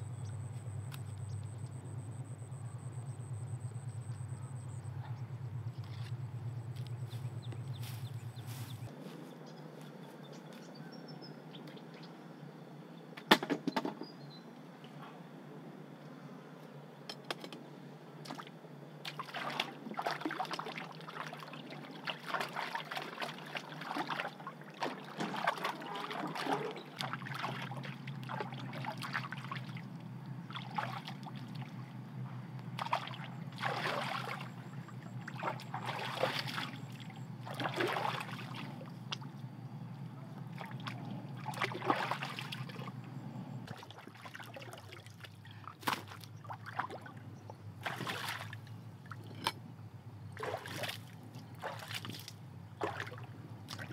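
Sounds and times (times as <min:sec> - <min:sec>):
water splashing and sloshing: 0:04.9 - 0:09.2, 0:17.3 - 0:53.9.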